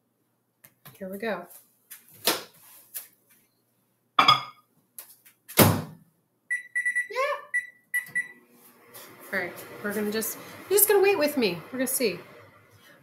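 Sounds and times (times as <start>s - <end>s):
short keypad beeps: 6.5s - 8.3s.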